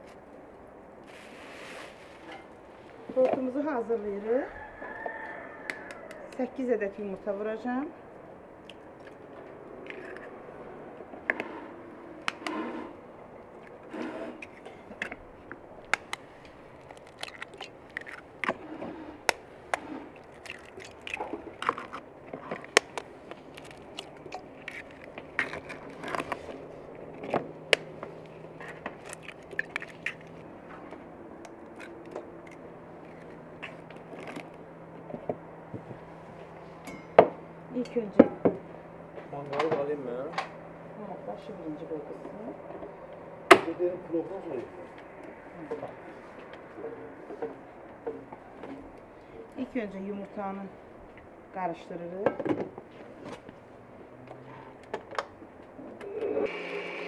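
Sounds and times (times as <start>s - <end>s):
eggshell crackling: 13.6s - 34.7s.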